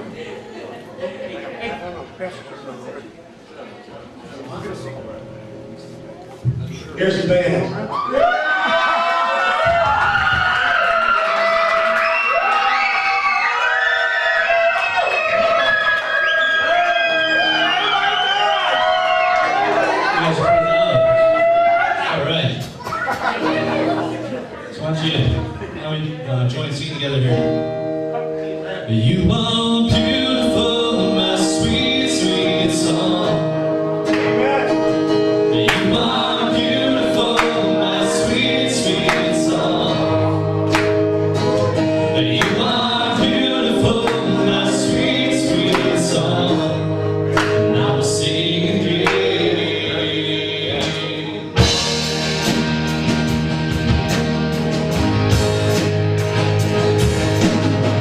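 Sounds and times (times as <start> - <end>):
live band playing: 22.2 - 25.7, 27.0 - 58.0
person singing: 28.9 - 40.5, 41.5 - 51.8.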